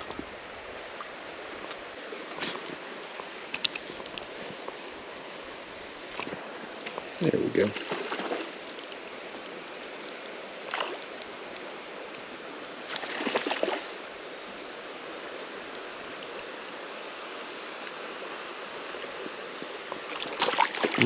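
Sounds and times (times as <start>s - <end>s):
creek water rushing: 0.2s - 21.0s.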